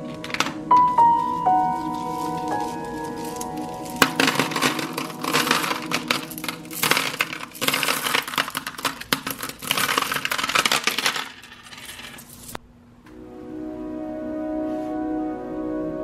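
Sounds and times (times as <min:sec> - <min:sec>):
pebbles clattering into plastic bowl: 0:00.0 - 0:12.6.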